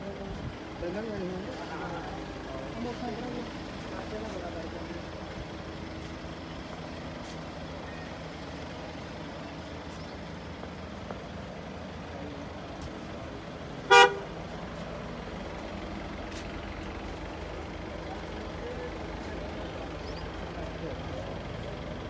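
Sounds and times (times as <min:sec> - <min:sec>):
vehicle engine running: 0:00.0 - 0:22.0
car horn toot: 0:13.9 - 0:14.3.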